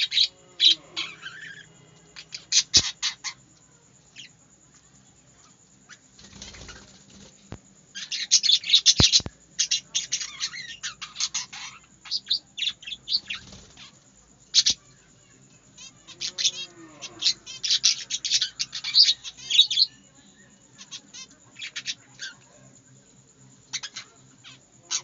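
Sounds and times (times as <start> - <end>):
wing flutters: 5.9 - 8.0, 13.1 - 14.0
budgerigars chirping: 8.0 - 13.9.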